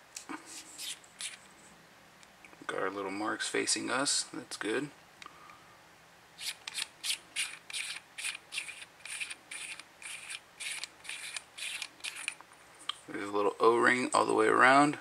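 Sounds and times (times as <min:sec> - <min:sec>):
threaded cap scraping rasp: 0:00.5 - 0:01.5, 0:06.4 - 0:12.4.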